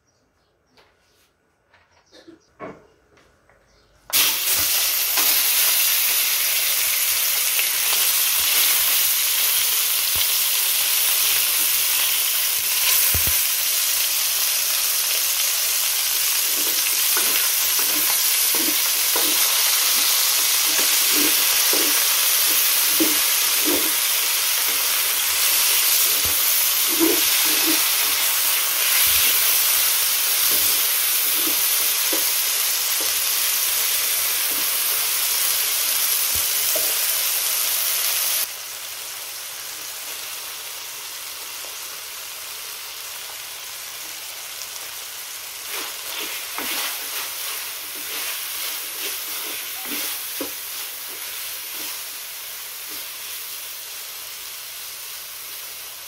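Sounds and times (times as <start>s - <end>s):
chicken sizzling in hot oil: 4.1s - 56.0s
spatula knocking and scraping pan: 16.5s - 29.7s, 45.7s - 52.0s.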